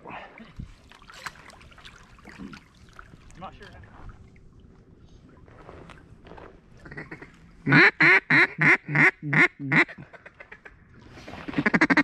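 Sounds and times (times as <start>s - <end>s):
duck call quacks: 6.9s - 10.0s, 11.6s - 12.0s.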